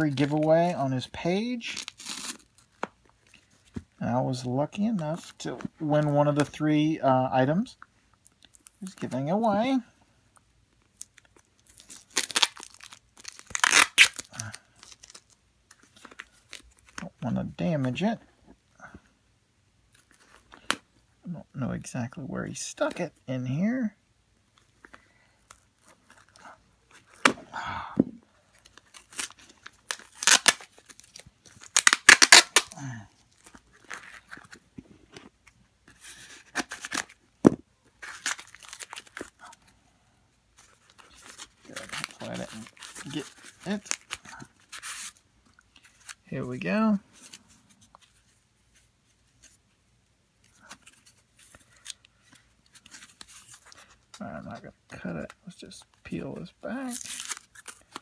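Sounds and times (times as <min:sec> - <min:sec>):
paper wrapping crinkling and tearing: 0:00.0 - 0:03.4, 0:10.9 - 0:17.1, 0:28.4 - 0:34.6, 0:35.9 - 0:37.2, 0:37.9 - 0:39.8, 0:40.5 - 0:49.6, 0:50.5 - 0:54.2, 0:56.4 - 0:58.0.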